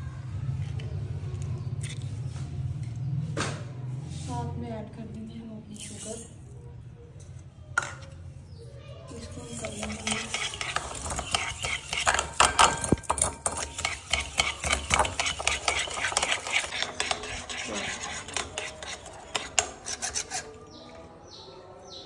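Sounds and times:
utensil beating batter in bowl: 9.1 - 20.6.

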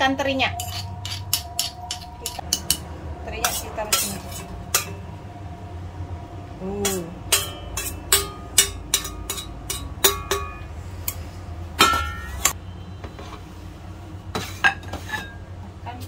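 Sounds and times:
spoon scraping metal plate: 0.6 - 2.8, 3.4 - 4.9
ringing metal clank: 6.9 - 10.7, 11.8 - 12.6.

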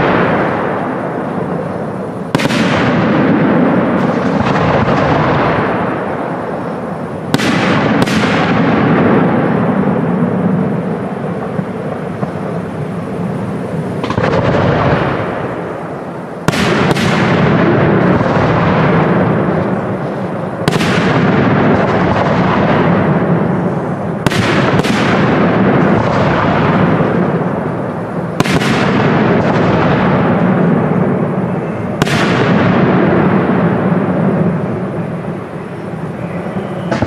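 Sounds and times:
firework shells bursting: 0.0 - 36.1.

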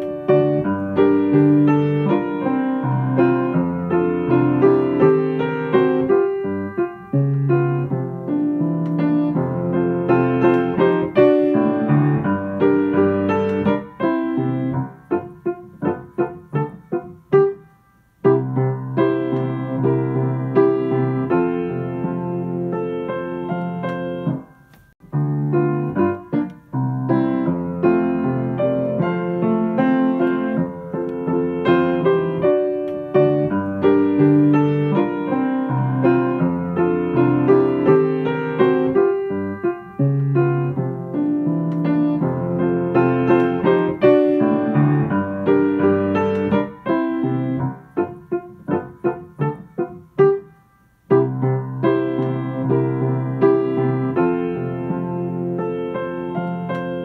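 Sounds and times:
slow piano music: 0.0 - 57.0.

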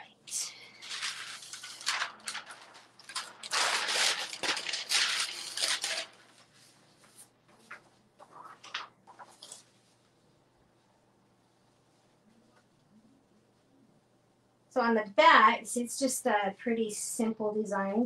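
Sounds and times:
paper and fabric rustling: 0.7 - 10.2.

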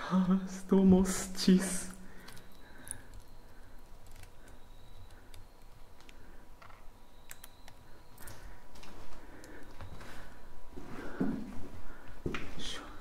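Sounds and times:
faint high-pitched whine: 0.0 - 13.0
sharp light clicks: 4.0 - 8.5
soft rustling movement: 8.3 - 12.9.

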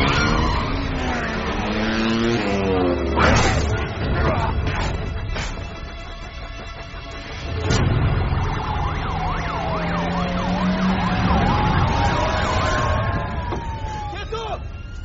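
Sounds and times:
wailing siren: 0.0 - 3.3, 7.4 - 15.0
yelping police siren: 8.2 - 15.0.

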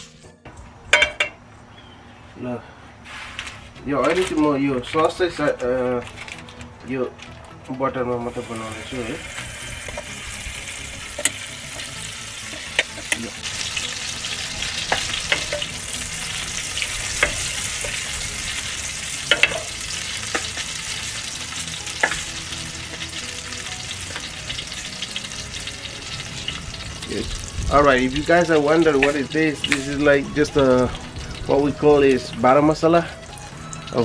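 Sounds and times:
butter sizzling in frying pan: 8.3 - 34.0.

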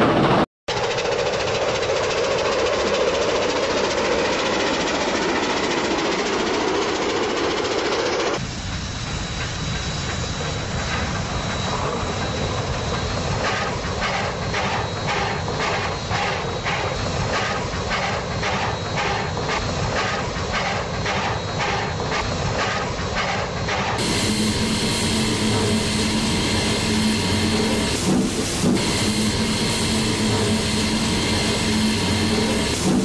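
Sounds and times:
steam train chuffing: 0.0 - 33.0
steam hissing: 6.4 - 33.0
low drone: 24.0 - 33.0.

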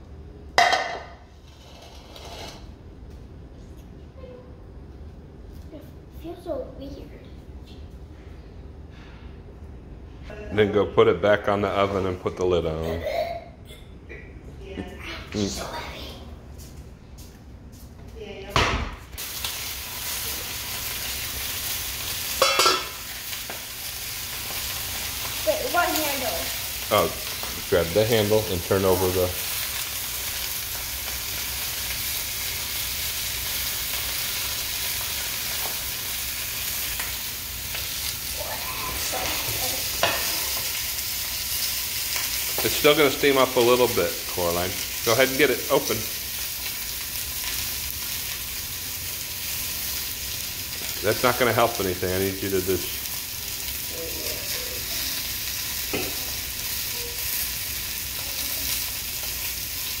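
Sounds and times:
sausages sizzling in a pan: 19.2 - 60.0.

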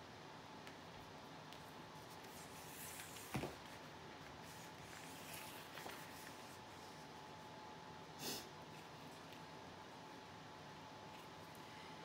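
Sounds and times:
paper handling on a table: 1.5 - 6.6
paper rustle: 1.6 - 7.0.

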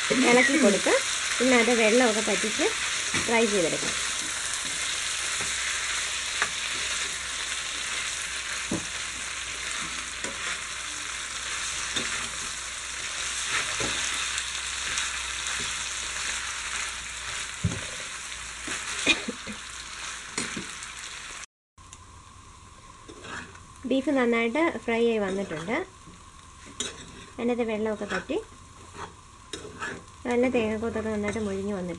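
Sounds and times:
meat sizzling in oil: 0.0 - 31.9
spatula scraping and knocking pan: 26.6 - 30.1.

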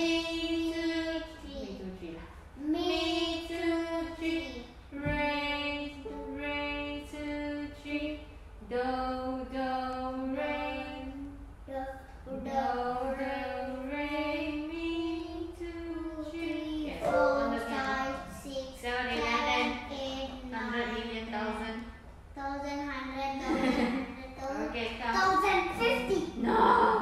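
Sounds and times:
boy and woman singing: 0.0 - 21.8.

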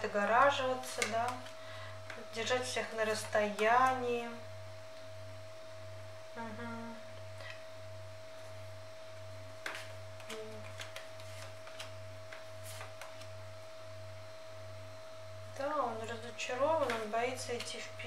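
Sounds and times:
steady whine: 0.0 - 10.7
low pulsing hum: 0.0 - 12.6
cards being handled: 0.6 - 2.2, 9.6 - 13.4, 16.8 - 17.8.

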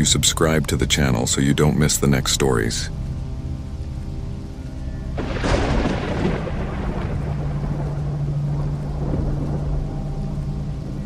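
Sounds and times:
low droning music: 0.0 - 11.0
thunderclap crash rumbling: 5.2 - 9.9.

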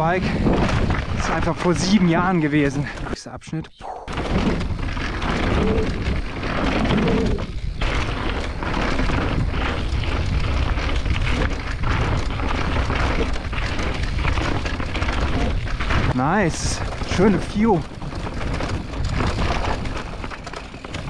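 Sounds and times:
wind buffeting microphone: 0.0 - 2.9
bike tyres rattling on dirt trail: 0.0 - 3.3, 3.9 - 21.0.

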